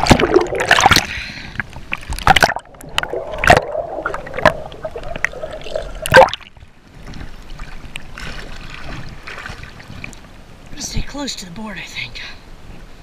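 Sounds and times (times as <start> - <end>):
water slapping against camera: 0.0 - 10.2
water splashing and gurgling: 0.0 - 10.8.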